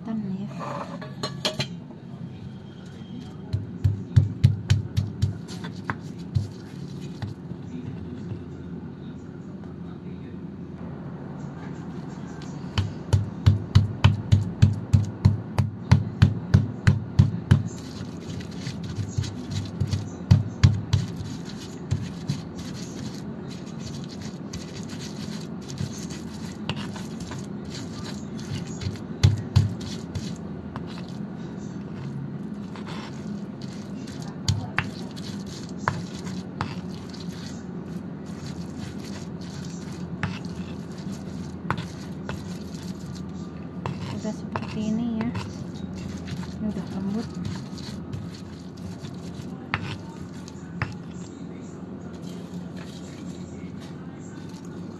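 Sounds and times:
pestle grinding scrapes: 2.8s - 7.5s, 12.4s - 51.3s, 52.1s - 54.9s
stone pestle knocking in mortar: 3.5s - 7.4s, 12.8s - 23.2s, 23.9s - 31.0s.

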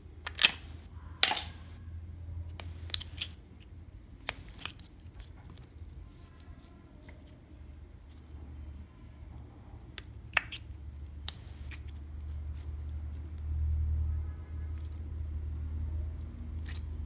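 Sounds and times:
plastic casing snapping and crackling: 0.2s - 1.8s.

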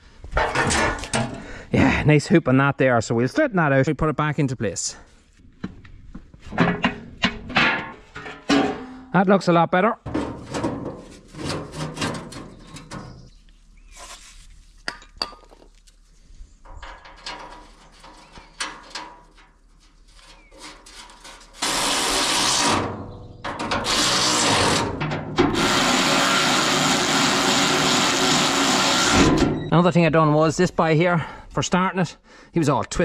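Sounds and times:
steel sheet knocking and scraping: 0.3s - 1.5s, 6.4s - 9.2s, 10.0s - 13.2s, 16.6s - 29.6s.

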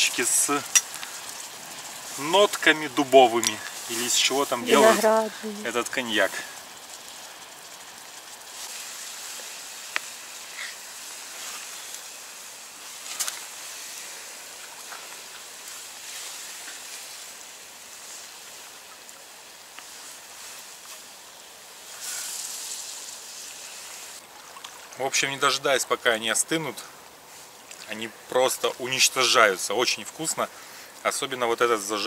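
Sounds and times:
crepes sizzling in a frying pan: 0.0s - 24.3s, 26.5s - 32.0s.

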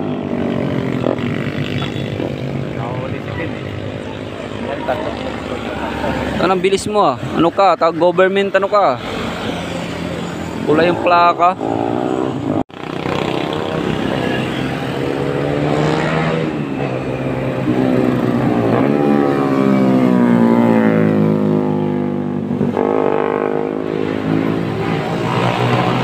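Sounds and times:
motorcycles passing at speed: 0.0s - 26.0s.

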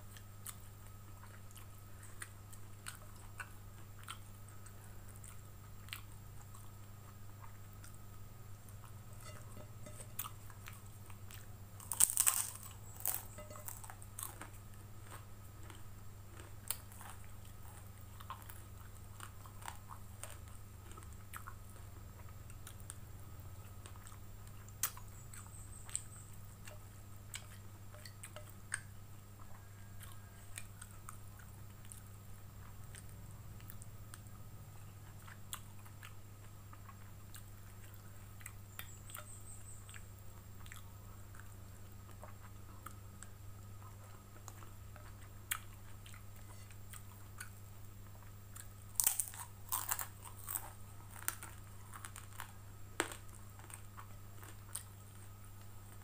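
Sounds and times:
crunching crispy cracker: 8.7s - 26.7s, 34.9s - 56.0s
chewing noodles: 8.7s - 56.0s.

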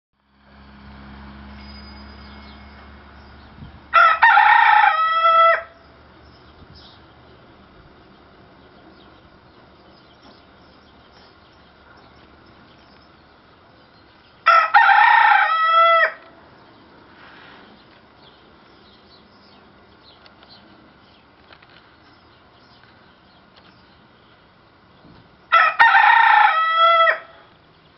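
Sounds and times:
rooster crowing: 3.9s - 6.0s, 14.4s - 16.3s, 25.5s - 27.5s.

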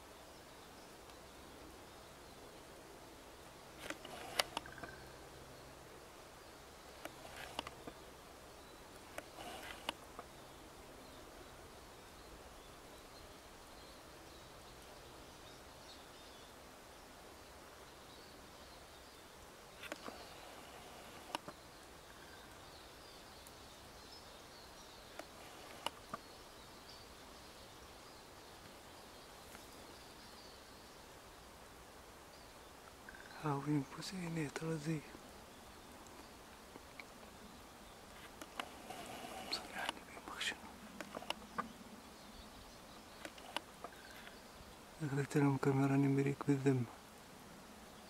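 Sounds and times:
low background hiss: 0.0s - 48.0s
sharp clicks: 3.8s - 5.0s, 7.0s - 8.0s, 9.1s - 10.3s, 21.2s - 21.6s, 25.1s - 26.2s, 38.2s - 40.3s, 41.0s - 41.7s, 43.2s - 44.3s
finches twittering: 37.3s - 46.9s.

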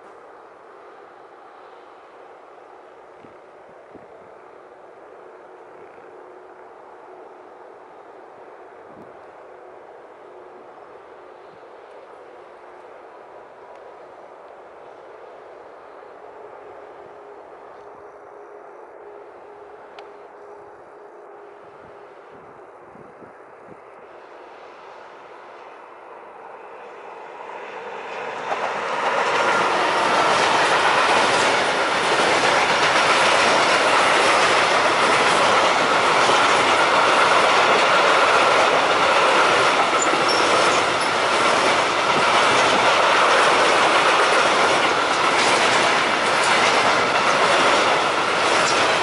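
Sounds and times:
train wheels clattering over rail joints: 28.3s - 49.0s
high-pitched wheel squeal: 40.0s - 41.2s.

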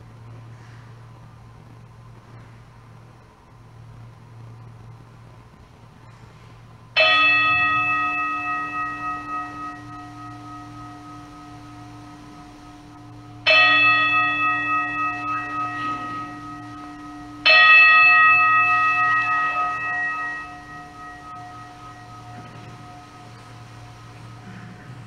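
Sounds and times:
altar bell ringing: 7.0s - 25.0s.

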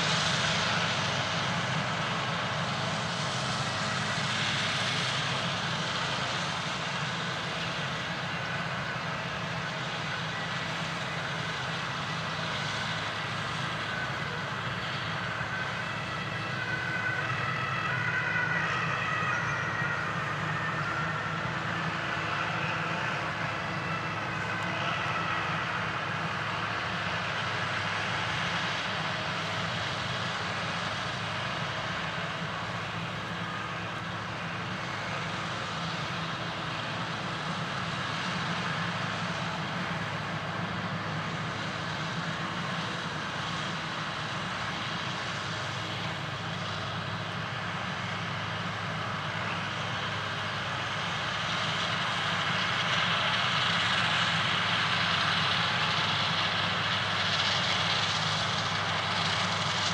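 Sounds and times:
harvester engine and chopper drone: 0.0s - 59.9s.

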